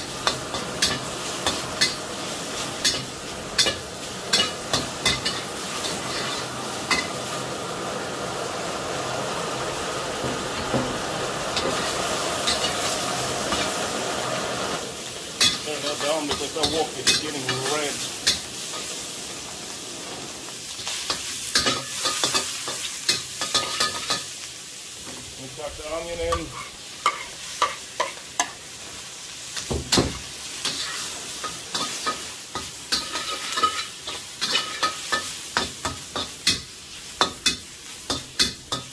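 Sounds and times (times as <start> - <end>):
meat sizzling in a wok: 0.0 - 38.9
spatula clacking against wok: 29.6 - 38.9.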